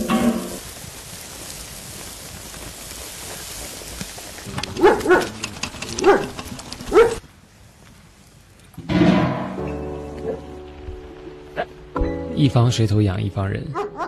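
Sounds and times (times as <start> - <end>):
steady hiss: 0.0 - 8.8
dog barking: 4.7 - 5.4, 6.0 - 7.2, 13.7 - 14.0.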